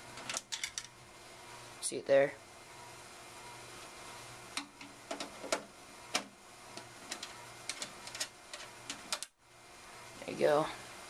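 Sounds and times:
clicks and taps on computer case: 4.6 - 6.3.

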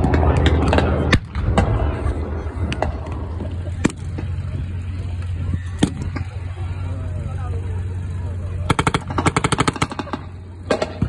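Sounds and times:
low rumble: 0.0 - 11.0
rifle shots: 8.7 - 11.0.

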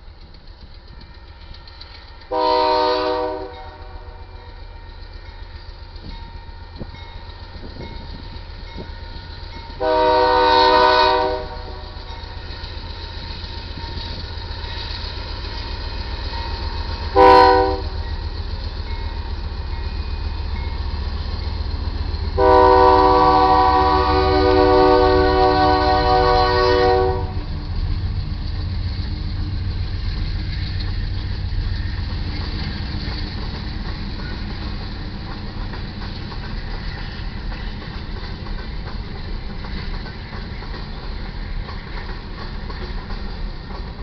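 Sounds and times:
train horn blast: 2.3 - 4.3, 9.8 - 12.0, 17.2 - 18.1, 22.4 - 27.4.

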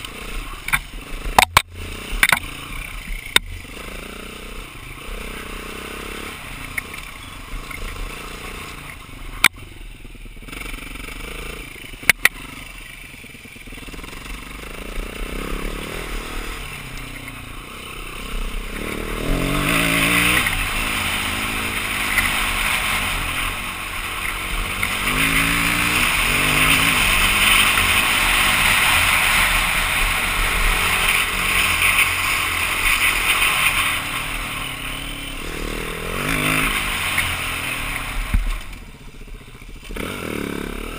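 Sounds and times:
motorcycle engine revving: 0.0 - 40.9.

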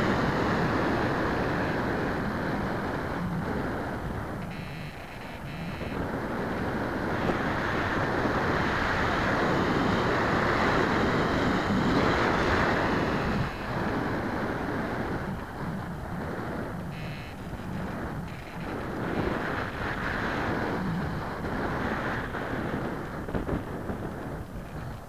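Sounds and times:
faint high whine: 0.0 - 25.0
wind noise on microphone: 0.0 - 25.0.

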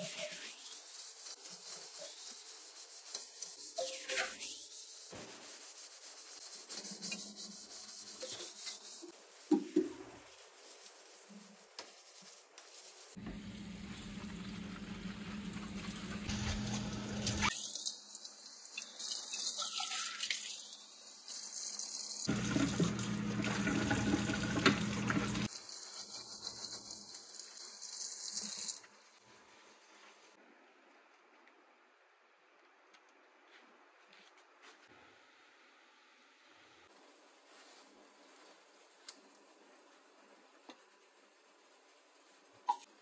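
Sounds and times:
tap water running into sink: 22.3 - 25.5.

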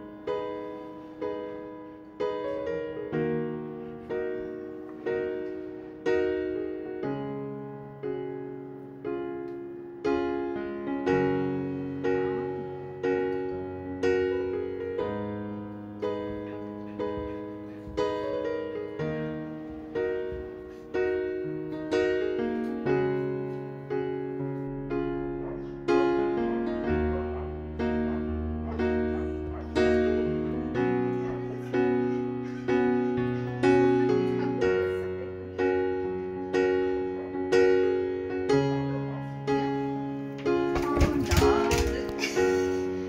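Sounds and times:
piano chords ringing: 0.0 - 43.0.

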